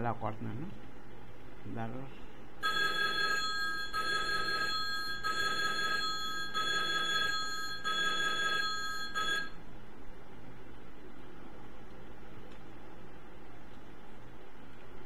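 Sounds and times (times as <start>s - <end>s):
telephone ringing: 2.6s - 9.6s.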